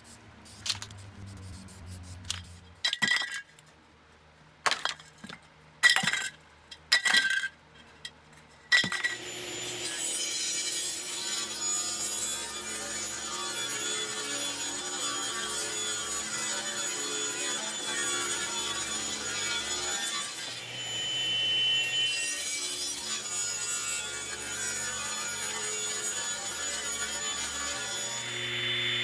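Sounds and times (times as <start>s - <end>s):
saw motor humming: 0.0s - 2.8s, 9.2s - 14.5s, 17.1s - 29.0s
table saw ripping wood: 8.8s - 29.0s.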